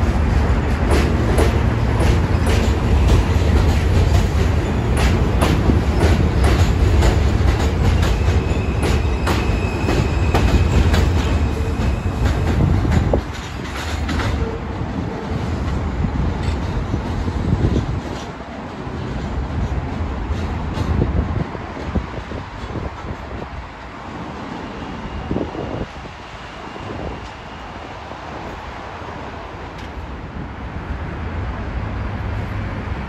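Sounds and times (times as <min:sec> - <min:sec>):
wheels clacking over rail joints: 0:00.0 - 0:24.4
train rumbling on elevated track: 0:00.0 - 0:33.0.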